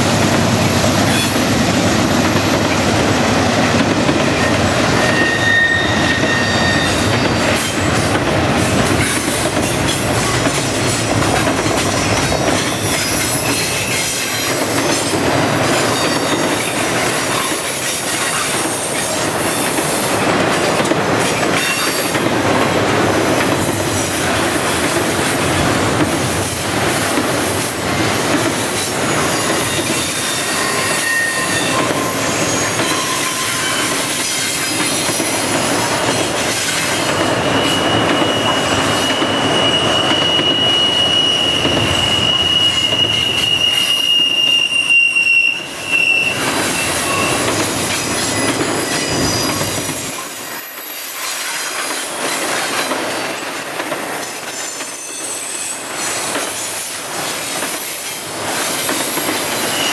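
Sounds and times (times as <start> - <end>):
train wheels rumbling on rail: 0.0 - 59.9
high-pitched wheel squeals: 4.3 - 7.8, 29.3 - 34.6, 36.8 - 50.8, 59.5 - 59.9.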